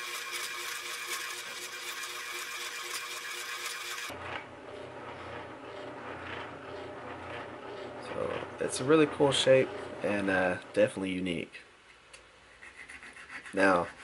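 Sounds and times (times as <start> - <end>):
spindle sander motor hum: 0.0 - 10.8.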